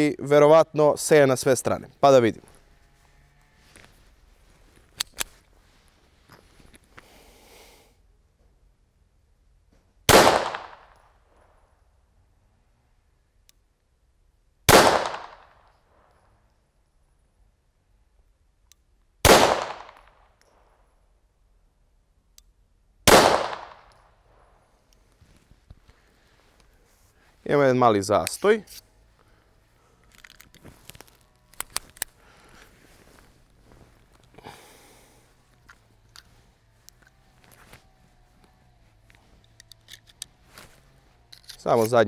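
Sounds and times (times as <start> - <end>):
low steady hum: 0.0 - 42.0
pistol handling clicks and rustles: 3.8 - 5.6, 23.2 - 26.0, 28.1 - 29.0, 29.9 - 34.4, 35.4 - 42.0
pistol shots: 10.1 - 11.0, 14.7 - 15.6, 19.2 - 20.2, 23.1 - 24.0.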